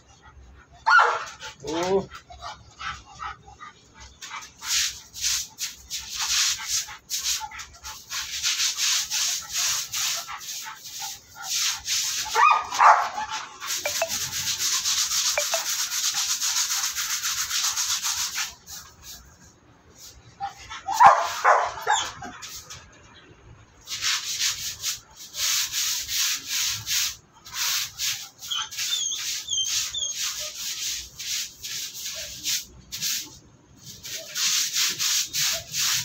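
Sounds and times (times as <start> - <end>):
stiff brush scrubbing: 4.2 - 20.3, 23.9 - 36.0.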